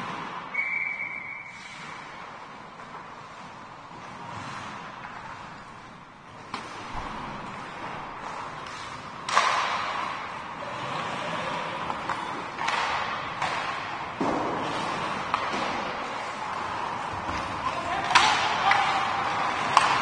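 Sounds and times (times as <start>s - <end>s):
hockey stick and puck knocks: 6.4s - 10.3s, 11.8s - 16.2s, 19.5s - 20.0s.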